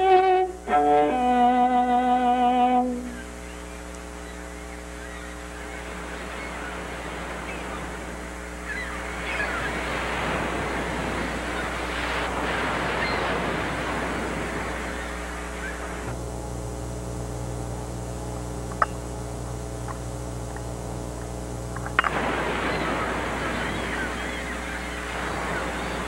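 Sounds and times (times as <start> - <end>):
steady low hum: 0.0 - 26.0
bird calls: 3.0 - 16.1, 21.8 - 26.0
water washing: 5.4 - 16.1, 21.8 - 26.0
sharp click: 18.7 - 19.0.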